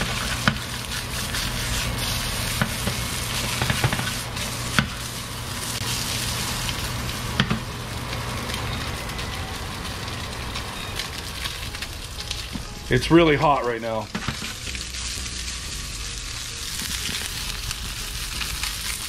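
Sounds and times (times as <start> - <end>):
fish sizzling in oil: 0.0 - 19.0.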